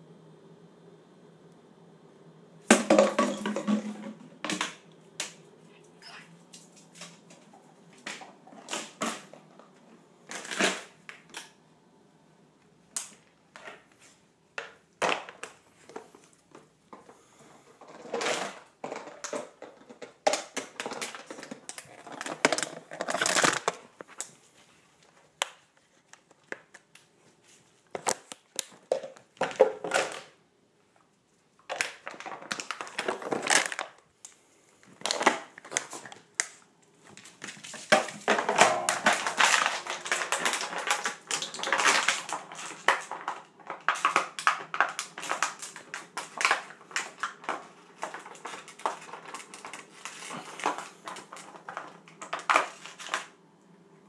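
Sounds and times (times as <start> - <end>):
plastic bottle crackling: 2.7 - 5.4, 17.9 - 24.4, 31.6 - 34.0, 34.9 - 53.3.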